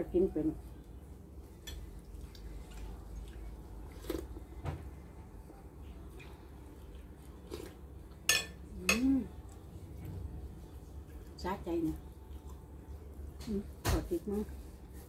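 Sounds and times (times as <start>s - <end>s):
metal spoon clinking on plate: 8.3s - 9.0s.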